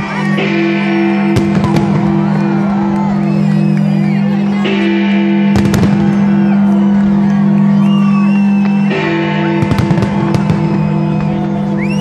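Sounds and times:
fireworks bangs: 1.2 - 2.8, 5.5 - 6.7, 9.4 - 11.6.

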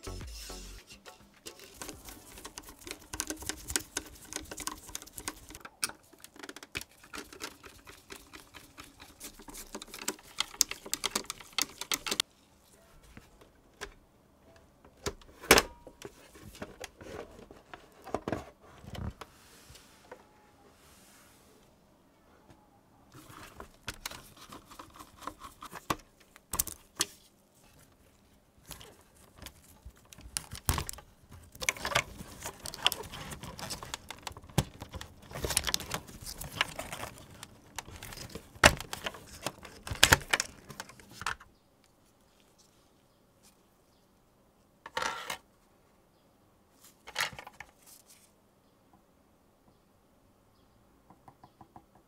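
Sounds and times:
gloved hands rustling: 0.0 - 7.4, 23.2 - 41.2
clicks and rattles of parts: 1.0 - 12.2, 28.6 - 41.5.

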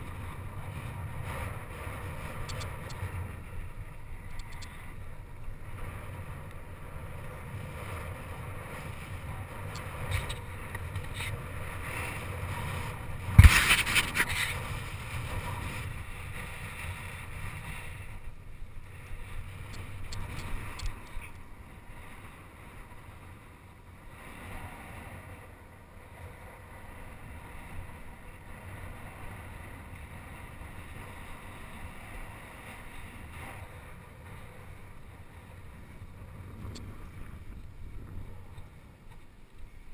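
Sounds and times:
bicycle tyres rolling on dirt: 0.0 - 39.9
wind on microphone: 0.0 - 39.9.

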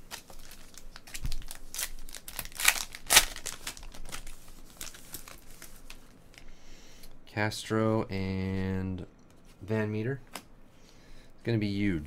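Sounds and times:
wrapper crinkling and tearing: 0.0 - 6.4.

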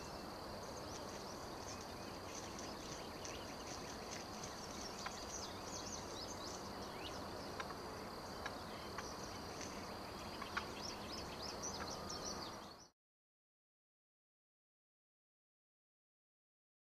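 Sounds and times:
birds chirping and singing: 0.0 - 12.9.

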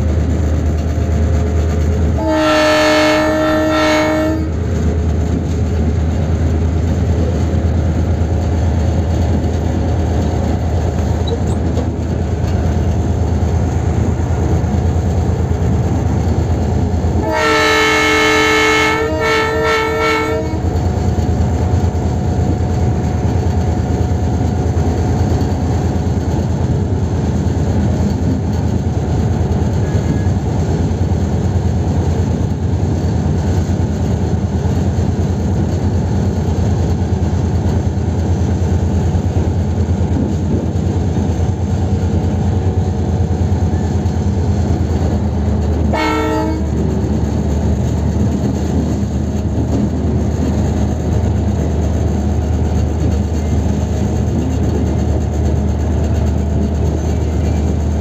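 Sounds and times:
diesel locomotive engine throbbing: 0.0 - 58.0
locomotive horn blast: 2.2 - 4.6, 17.2 - 20.8, 45.9 - 46.9.

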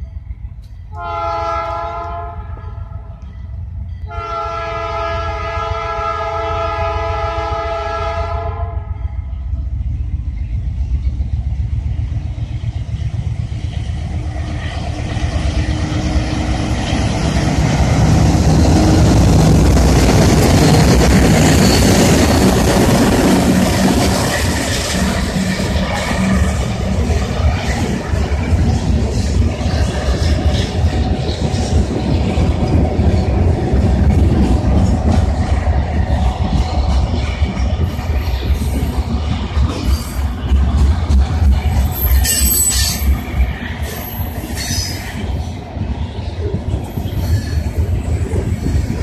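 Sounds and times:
locomotive engine rumble: 0.0 - 49.0
locomotive air horn: 1.0 - 2.6, 4.1 - 9.0
freight cars rumbling and clattering: 9.6 - 49.0.

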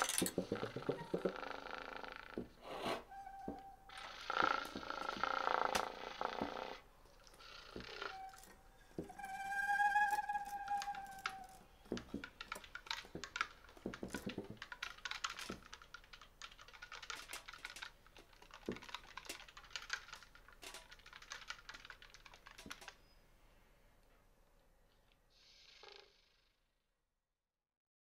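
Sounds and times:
ensemble clicks taps and rattles: 0.0 - 1.6, 10.5 - 23.1.

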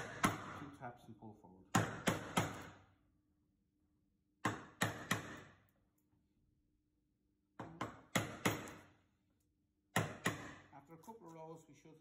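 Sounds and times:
mallet striking a chisel: 0.0 - 0.6, 1.7 - 2.8, 4.4 - 5.5, 7.6 - 8.9, 9.9 - 10.6.

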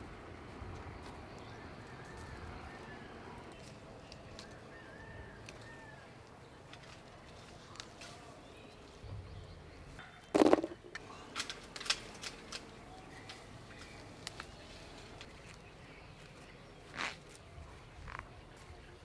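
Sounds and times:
leaves and twigs rustling: 5.4 - 9.0, 11.2 - 18.7.

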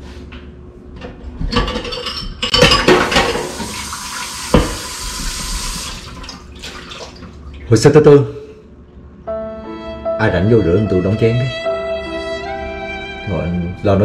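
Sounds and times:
dishes clattering in a metal sink: 1.0 - 5.4
tap running: 2.9 - 7.4.

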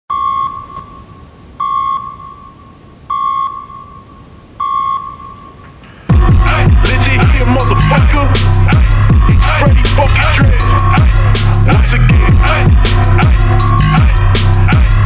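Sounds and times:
electronic pings: 0.1 - 5.6
hip-hop beat with deep bass: 6.1 - 15.0.

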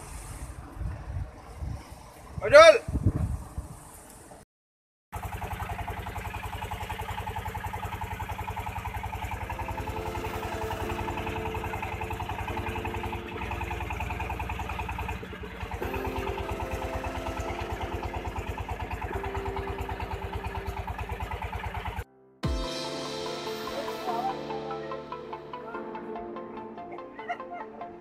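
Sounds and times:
boat engine thudding: 5.2 - 22.1
held tones stepping in pitch: 9.5 - 15.2, 15.8 - 21.2.

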